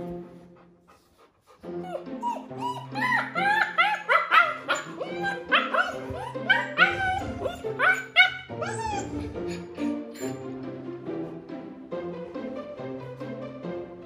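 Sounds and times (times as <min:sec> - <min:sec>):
background music: 0:00.0 - 0:14.0
puppy whining and yipping: 0:01.8 - 0:10.4.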